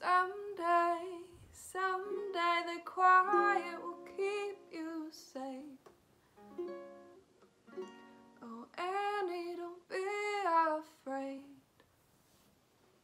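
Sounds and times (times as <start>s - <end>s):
woman singing: 0.0s - 5.9s, 8.4s - 11.6s
ukulele played softly: 1.8s - 5.7s, 6.4s - 9.8s.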